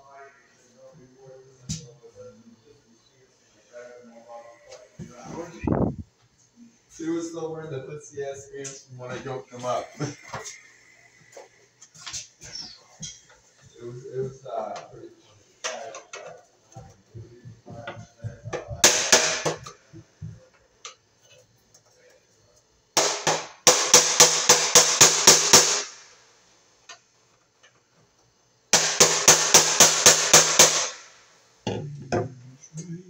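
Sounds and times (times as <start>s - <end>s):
rapid metallic strikes with clang: 18.8s - 19.6s, 23.0s - 26.0s, 28.8s - 31.1s.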